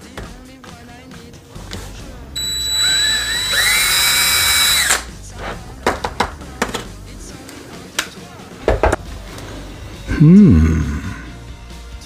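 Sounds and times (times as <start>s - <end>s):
electric drill whining: 2.4s - 5.1s.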